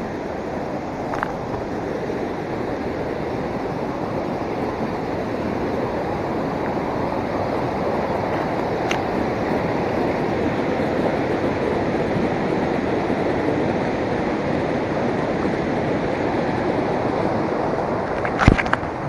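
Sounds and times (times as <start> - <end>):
stream rushing over stones: 0.0 - 19.0.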